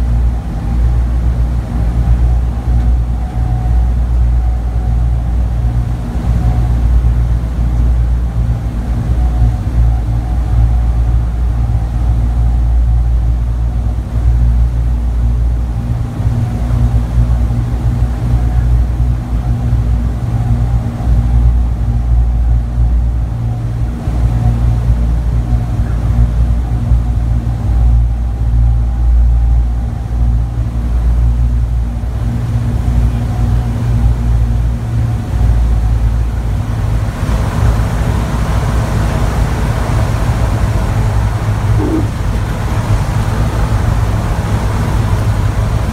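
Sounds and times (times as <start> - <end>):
aircraft engines droning: 0.0 - 45.9.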